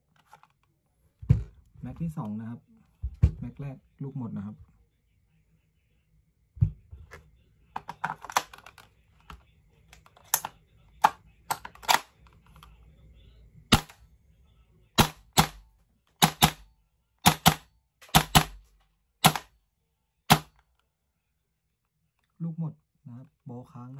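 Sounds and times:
airsoft rifle sharp cracks: 15.0s - 15.6s, 16.2s - 16.6s, 17.2s - 18.6s, 19.2s - 19.5s, 20.3s - 20.5s.

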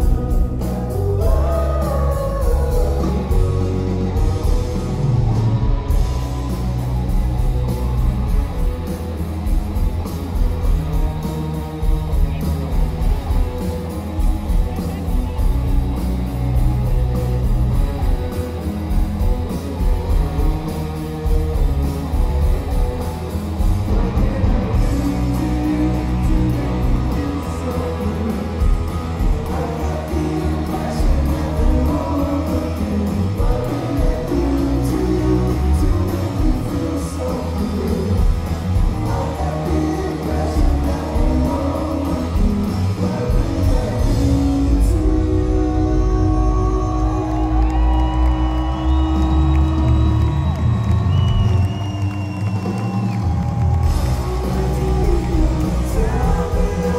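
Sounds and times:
person singing: 0.0s - 6.1s, 23.6s - 50.0s, 53.8s - 56.9s
live rock band playing: 0.0s - 56.9s.

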